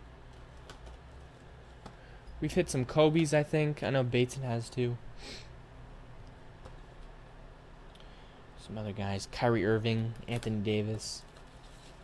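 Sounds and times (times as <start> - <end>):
low room hum: 0.0 - 12.0
person sniffing: 5.2 - 5.6.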